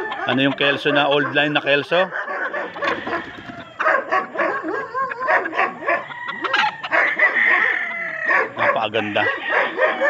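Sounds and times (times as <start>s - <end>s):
animals yelping: 0.0s - 10.0s.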